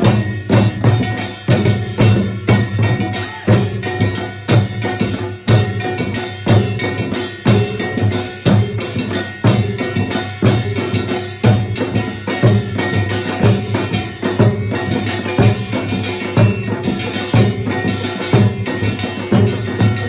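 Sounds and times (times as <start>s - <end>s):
drums beating steady rhythm: 0.0s - 20.0s.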